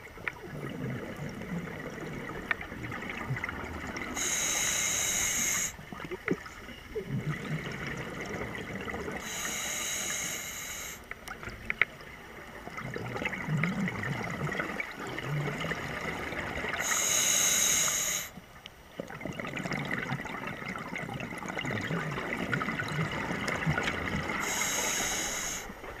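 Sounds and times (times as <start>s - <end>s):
regulator hissing inhalation: 4.2s - 5.8s, 9.2s - 11.0s, 16.8s - 18.4s, 24.4s - 25.8s.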